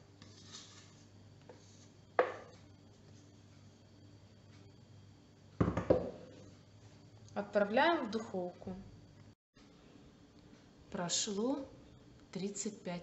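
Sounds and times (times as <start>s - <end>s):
spatula scraping cake batter: 0.1s - 2.0s
knocks on pan: 5.6s - 6.1s.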